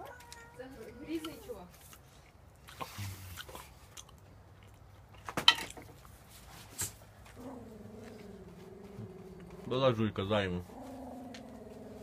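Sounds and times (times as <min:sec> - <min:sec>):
cat growling: 0:07.4 - 0:09.7, 0:10.7 - 0:12.0.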